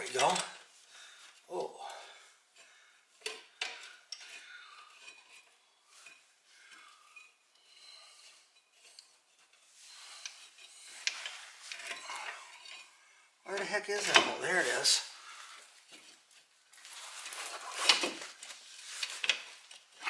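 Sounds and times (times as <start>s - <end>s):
metal clinks and scraping: 2.6s - 15.0s.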